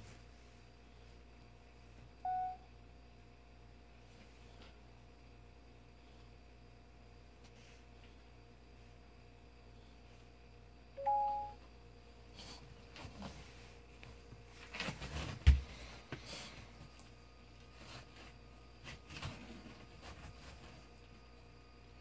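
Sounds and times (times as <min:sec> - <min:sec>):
two-tone electronic chime: 0:02.3 - 0:02.6, 0:11.0 - 0:11.6.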